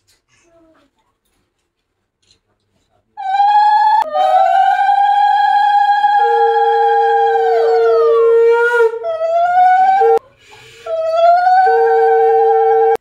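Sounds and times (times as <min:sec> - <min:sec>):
conch shells blowing long notes: 0:03.2 - 0:13.0.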